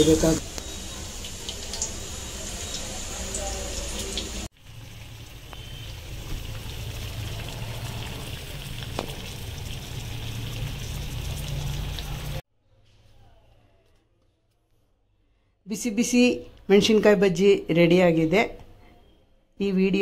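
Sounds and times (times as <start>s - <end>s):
chillies deep-frying in oil: 0.0s - 12.4s.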